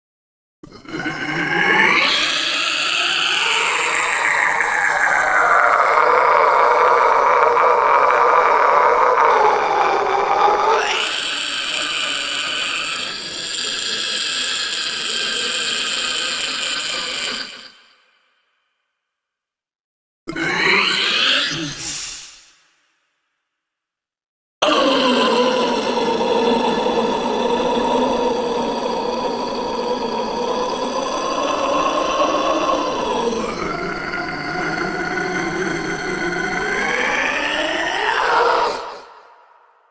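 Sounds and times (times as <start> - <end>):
man's effected vocal cry: 1.6 - 13.4, 20.3 - 22.4, 24.6 - 39.5.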